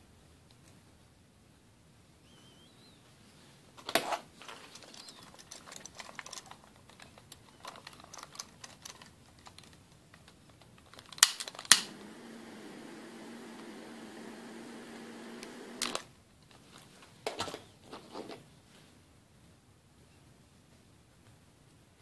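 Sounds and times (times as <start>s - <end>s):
handling clicks and rustles: 3.7s - 18.6s
torch lighter clicks: 11.2s - 12.7s, 13.5s - 16.0s
torch flame hissing: 11.7s - 16.0s.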